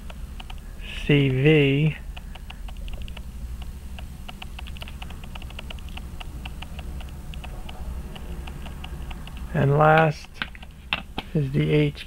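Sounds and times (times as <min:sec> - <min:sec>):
rapid light clicks: 0:00.0 - 0:01.4, 0:02.1 - 0:11.3
low steady hum: 0:00.0 - 0:12.0.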